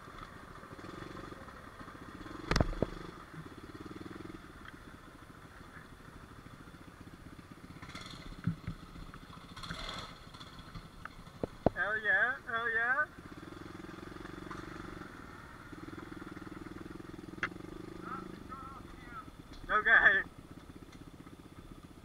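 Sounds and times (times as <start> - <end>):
small motorbike engine running: 0.0 - 11.8, 12.7 - 22.0
sharp clatter: 7.8 - 11.8.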